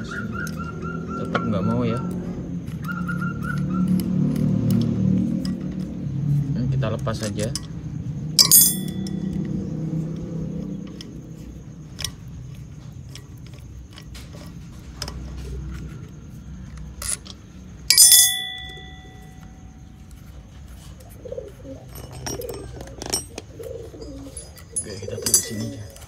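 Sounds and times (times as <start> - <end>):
wrench clicking and scraping bolts: 7.1 - 7.8, 8.4 - 9.6, 10.8 - 16.0, 16.6 - 19.6, 21.7 - 26.0
sharp metal clink: 8.4 - 9.6, 17.0 - 20.0, 21.8 - 26.0.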